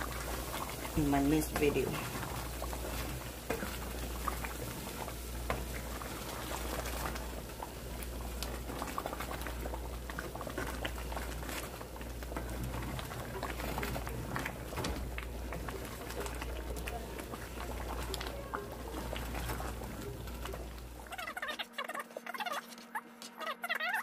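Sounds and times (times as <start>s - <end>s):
stew bubbling and popping: 0.0s - 24.0s.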